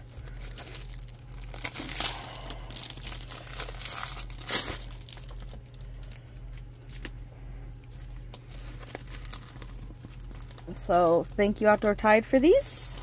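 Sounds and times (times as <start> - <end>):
plastic bag crinkling: 0.0 - 7.2, 7.8 - 13.0.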